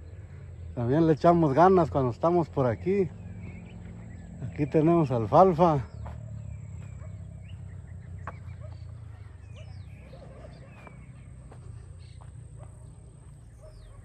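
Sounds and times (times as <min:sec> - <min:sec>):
bird chirps: 0:00.0 - 0:14.0.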